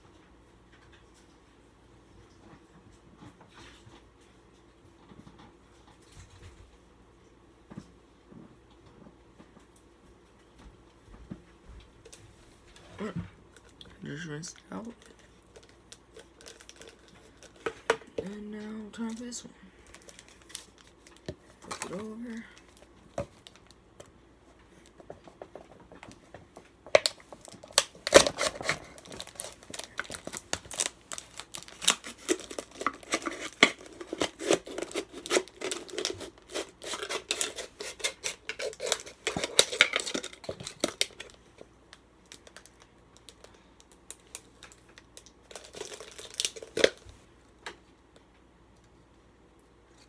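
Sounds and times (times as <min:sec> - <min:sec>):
knife cutting plastic bottle: 0:31.8 - 0:41.0.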